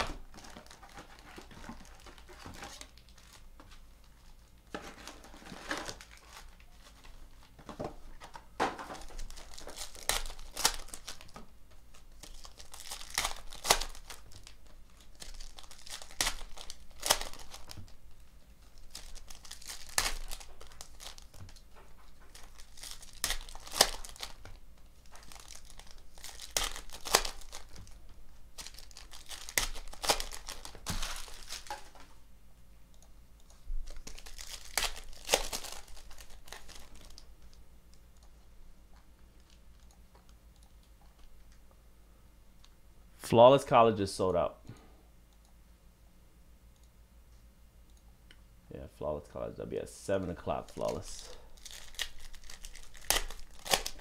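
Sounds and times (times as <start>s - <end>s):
foil packs tearing and crinkling: 0.0s - 3.4s, 4.8s - 7.2s, 9.0s - 17.9s, 18.8s - 21.6s, 22.2s - 28.0s, 28.6s - 32.0s, 33.9s - 37.2s, 50.6s - 54.0s.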